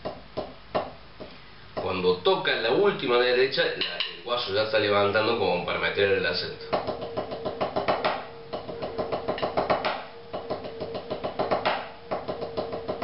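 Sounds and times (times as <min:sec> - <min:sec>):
drumsticks on a rubber practice pad: 0:06.7 - 0:13.0.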